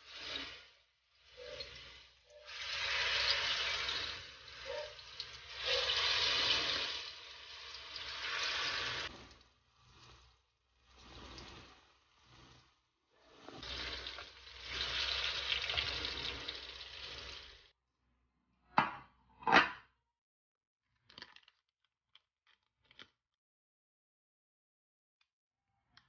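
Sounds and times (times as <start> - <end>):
food sizzling in hot oil: 0.0 - 17.7.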